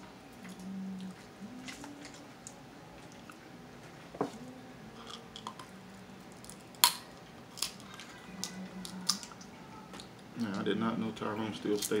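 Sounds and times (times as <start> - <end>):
chewing: 0.4 - 3.4
crab shell cracking: 6.3 - 10.1.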